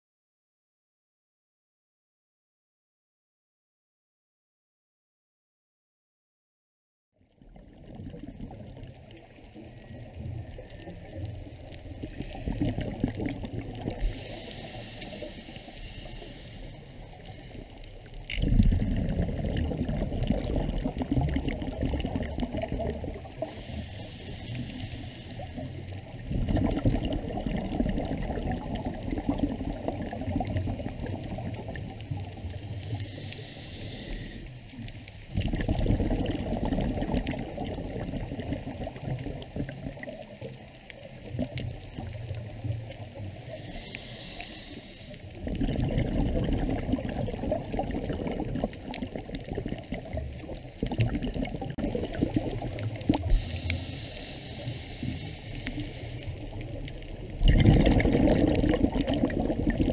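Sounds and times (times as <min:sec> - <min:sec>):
exhaled air bubbling underwater: 0:07.2 - 0:59.9
regulator hissing inhalations: 0:14.0 - 0:17.1, 0:23.4 - 0:25.8, 0:32.8 - 0:34.6, 0:43.4 - 0:45.3, 0:53.2 - 0:56.5.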